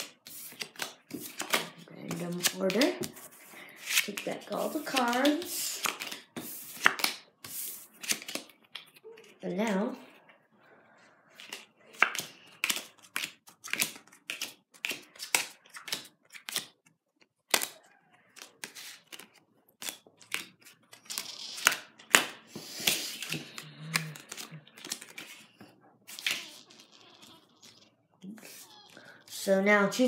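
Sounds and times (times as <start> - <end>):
cards rustling: 0.0 - 9.8, 11.3 - 29.6.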